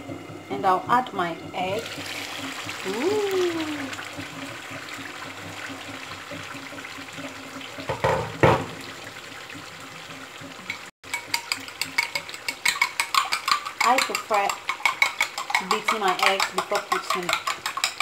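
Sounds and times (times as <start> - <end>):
stew simmering with sizzling hiss: 0.0 - 18.0
eggs beaten in ceramic bowl: 11.1 - 18.0.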